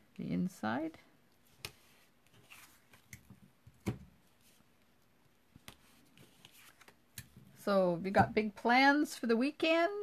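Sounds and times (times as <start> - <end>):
paper rustling: 1.5 - 3.3, 5.6 - 7.4.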